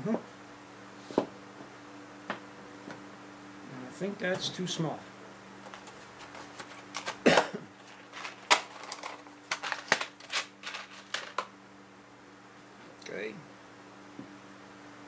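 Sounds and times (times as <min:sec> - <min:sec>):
plastic connectors clicking and rattling: 0:07.9 - 0:11.5.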